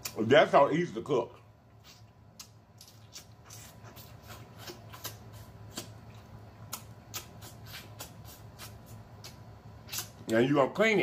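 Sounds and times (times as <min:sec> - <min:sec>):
wet eating mouth sounds: 0:01.7 - 0:10.3.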